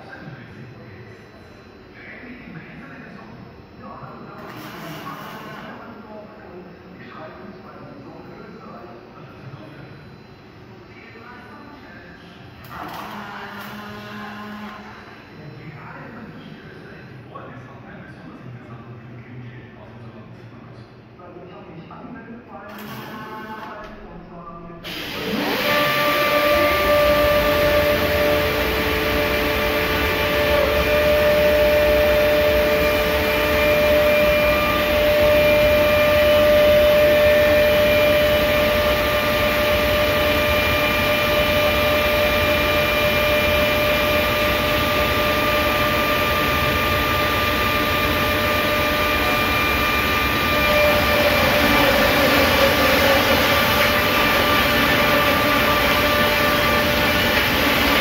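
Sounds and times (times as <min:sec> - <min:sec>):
cutting machine running with high whine: 0:00.0 - 0:18.3, 0:22.7 - 0:58.0.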